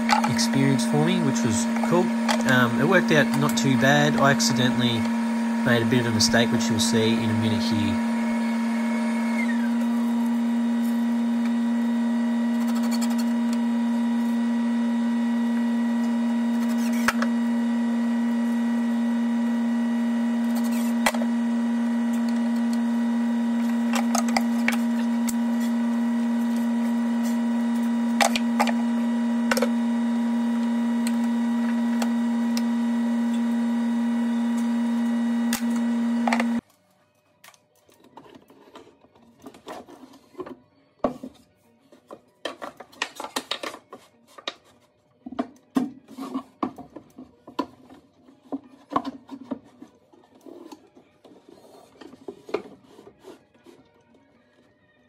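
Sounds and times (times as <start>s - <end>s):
loud steady hum: 0.0s - 36.6s.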